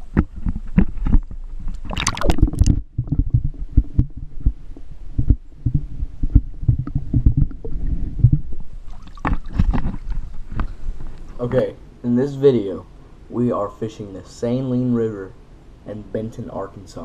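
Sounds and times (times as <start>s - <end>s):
muffled underwater knocks and rumbles: 0.0s - 11.1s
water splashing: 1.6s - 4.7s, 5.6s - 10.7s.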